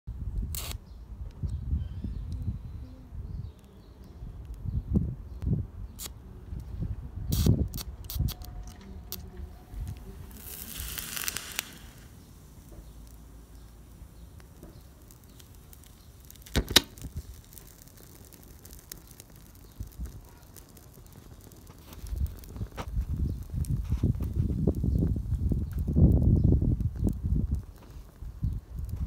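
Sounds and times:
sharp pops: 0:00.4 - 0:01.6, 0:07.3 - 0:29.0
speaker crackling clicks: 0:08.1 - 0:29.0
hissing burst: 0:09.5 - 0:29.0.

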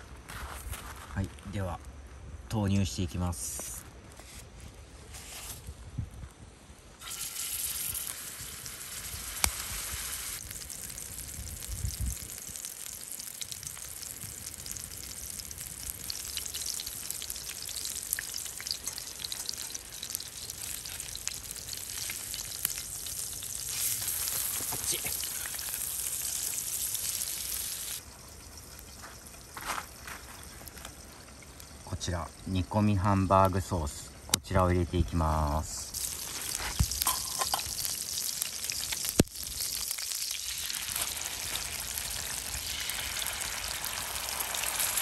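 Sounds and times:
patty sizzling in a frying pan: 0:07.0 - 0:33.4, 0:35.6 - 0:45.0.

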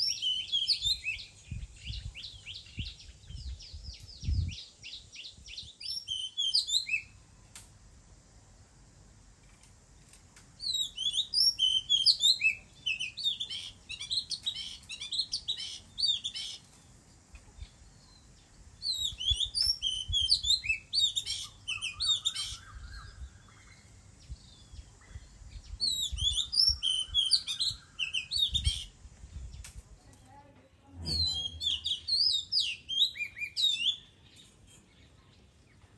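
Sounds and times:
bird singing whistled phrases: 0:00.0 - 0:07.2, 0:10.6 - 0:16.6, 0:18.8 - 0:23.6, 0:25.8 - 0:28.9, 0:31.0 - 0:34.2.

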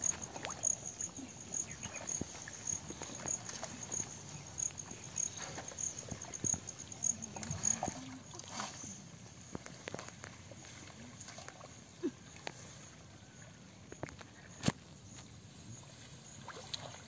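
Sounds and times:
insect chirping: 0:00.0 - 0:10.8.

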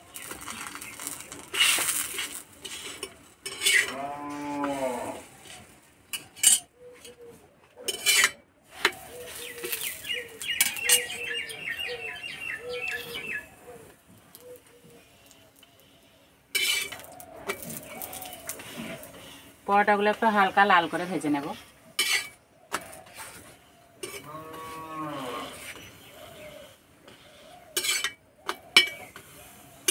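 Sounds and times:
metal spatula scraping a griddle: 0:00.1 - 0:07.2, 0:07.8 - 0:12.0, 0:15.2 - 0:19.7, 0:20.4 - 0:29.9
cow mooing: 0:03.9 - 0:05.2, 0:24.2 - 0:25.6
bird chirping: 0:09.0 - 0:16.0.

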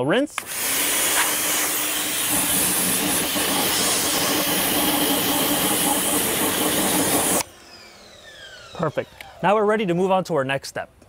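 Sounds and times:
pressure washer spraying water: 0:00.4 - 0:07.5.

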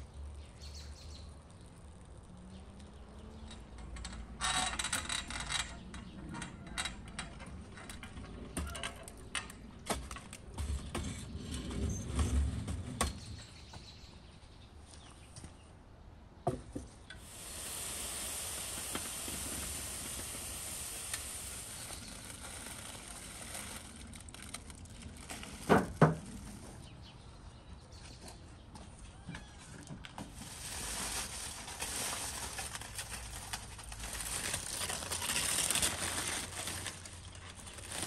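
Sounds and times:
steady hiss: 0:17.2 - 0:24.2.

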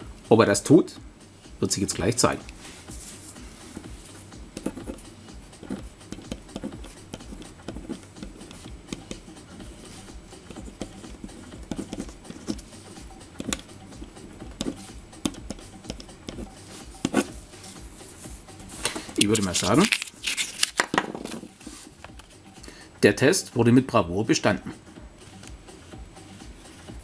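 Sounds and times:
pen scratching on paper: 0:02.9 - 0:18.4.

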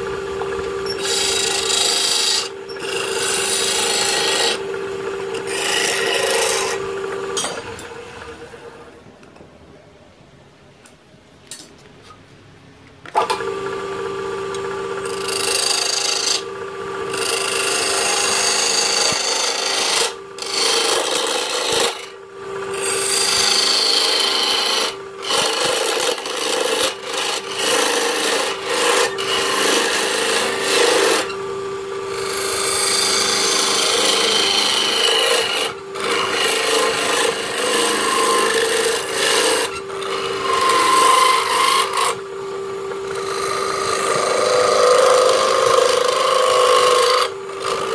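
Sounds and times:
turning tool scraping wood: 0:00.0 - 0:07.9, 0:15.0 - 0:16.5, 0:17.1 - 0:31.4, 0:32.1 - 0:42.2, 0:42.9 - 0:47.9
lathe motor humming: 0:00.0 - 0:09.1, 0:13.2 - 0:47.9.

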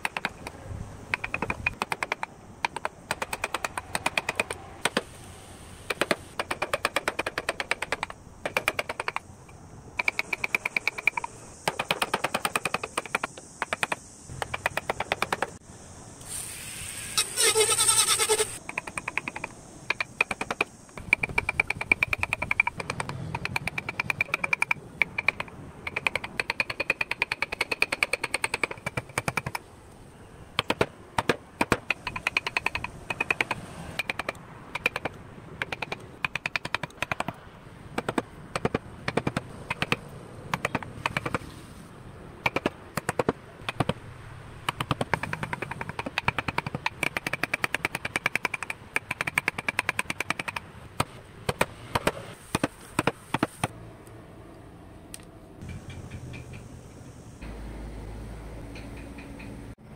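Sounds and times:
chisels tapping into wood: 0:01.1 - 0:05.0, 0:10.0 - 0:15.5, 0:18.6 - 0:29.6.

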